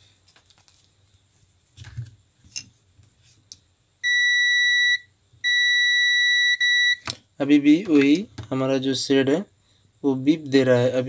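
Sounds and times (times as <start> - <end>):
multimeter continuity beep: 4.0 - 7.1.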